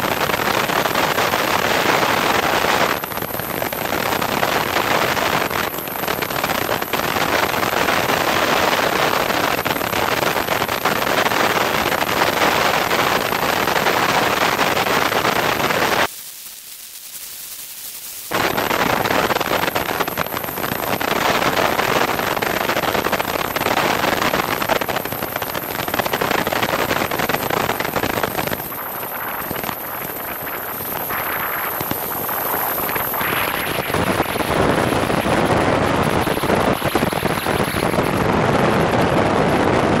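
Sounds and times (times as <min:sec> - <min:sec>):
wind buffeting camera: 0:18.3 - 0:40.0.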